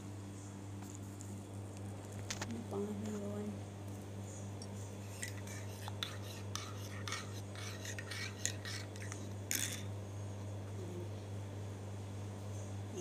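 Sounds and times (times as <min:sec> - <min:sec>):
teaspoon stirring in a mug: 0:05.0 - 0:09.9.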